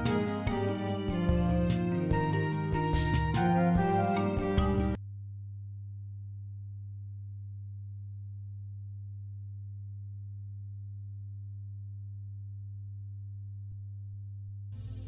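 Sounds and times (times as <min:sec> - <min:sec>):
steady low-pitched hum: 0:05.0 - 0:15.0.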